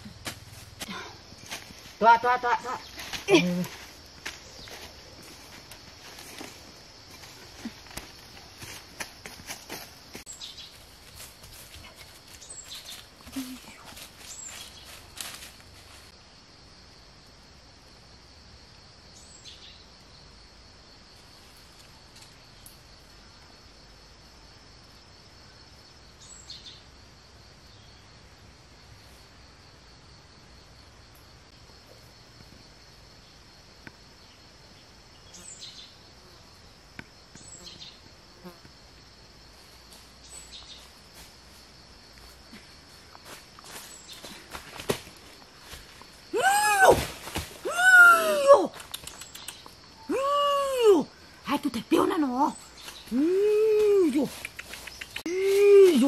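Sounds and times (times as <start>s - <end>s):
crickets chirping chorus: 0.0s - 56.0s
insects droning: 0.0s - 56.0s
sharp clicks: 48.8s - 49.8s, 54.4s - 55.3s.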